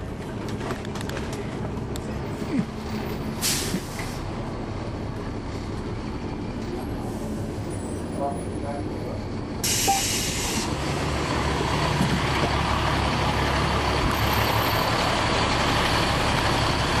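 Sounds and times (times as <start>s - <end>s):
bus diesel engine running: 0.0s - 17.0s
air brake hiss: 3.4s - 4.2s, 9.6s - 10.7s.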